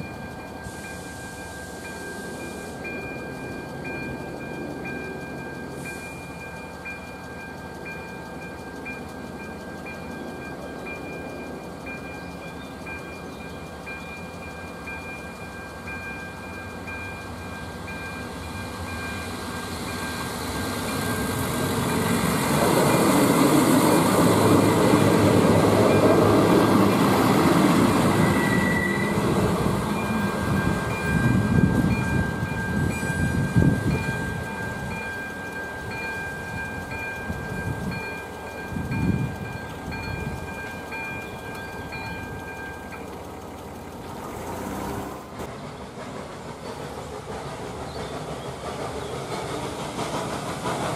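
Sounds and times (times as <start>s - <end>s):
level crossing warning bell: 0.0s - 44.1s
diesel railcar engine passing: 0.0s - 50.9s
train wheels clacking over rail joints: 3.1s - 50.9s.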